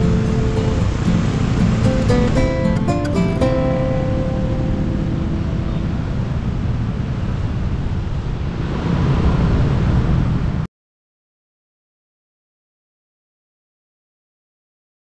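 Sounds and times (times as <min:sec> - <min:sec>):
guitar note: 0:00.0 - 0:07.1
traffic noise: 0:00.0 - 0:10.7
wind noise: 0:00.0 - 0:10.7.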